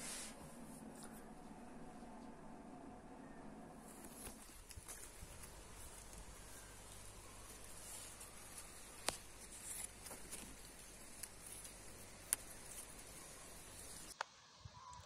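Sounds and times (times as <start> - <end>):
steady low hiss: 0.0 - 15.0
clicks of berries being picked: 3.8 - 14.2
leaves rustling: 3.8 - 14.2.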